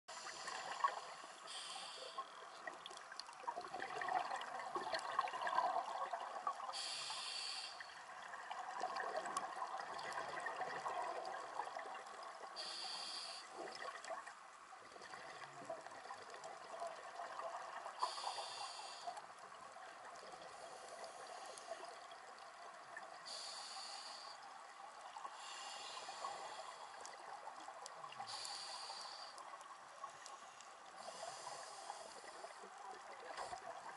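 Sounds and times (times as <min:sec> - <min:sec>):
regulator valve hiss: 0:00.1 - 0:02.3, 0:06.8 - 0:07.9, 0:12.6 - 0:13.6, 0:18.0 - 0:19.2, 0:23.3 - 0:24.5, 0:25.4 - 0:27.0, 0:28.2 - 0:29.4
exhaled bubbles burbling: 0:02.6 - 0:06.7, 0:08.2 - 0:12.5, 0:13.7 - 0:17.9.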